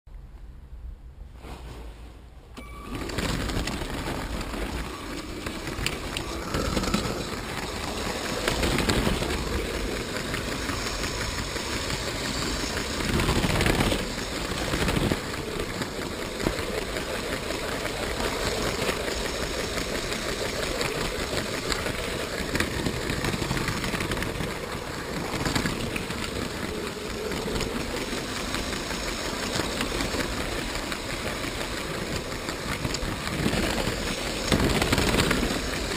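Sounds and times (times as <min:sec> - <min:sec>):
toy train clatter: 0:02.6 - 0:35.9
wheels clicking over plastic rails: 0:02.6 - 0:35.9
toy train motor whirring: 0:02.9 - 0:35.9.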